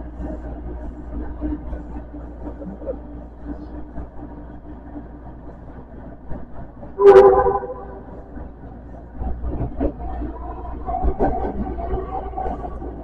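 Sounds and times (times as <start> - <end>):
wheels rumbling on rail: 0.0 - 13.0
faint steady hum: 7.0 - 9.0.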